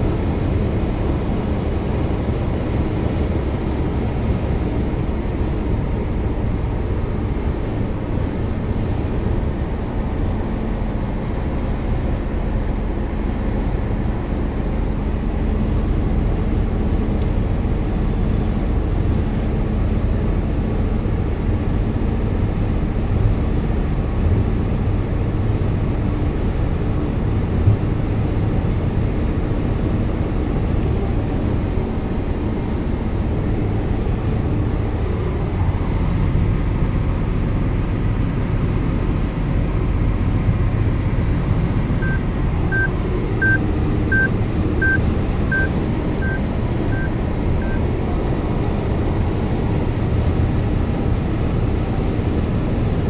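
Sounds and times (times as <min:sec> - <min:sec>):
car road and engine noise: 0:00.0 - 0:53.0
short high beeps: 0:42.0 - 0:47.8.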